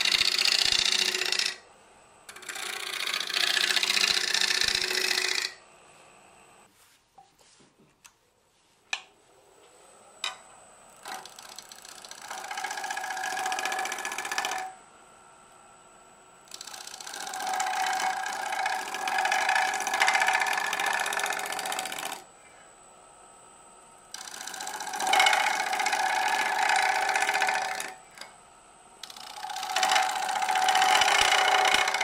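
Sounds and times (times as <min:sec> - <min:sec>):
bowl gouge cutting wood on lathe: 0:00.0 - 0:05.8, 0:10.2 - 0:14.8, 0:16.5 - 0:22.3, 0:24.1 - 0:28.4, 0:29.0 - 0:32.0.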